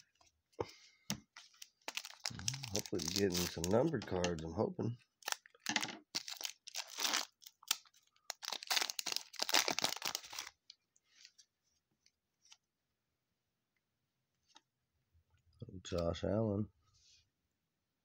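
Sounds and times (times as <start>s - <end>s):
foil wrapper tearing and crinkling: 1.5s - 4.4s, 5.2s - 10.7s.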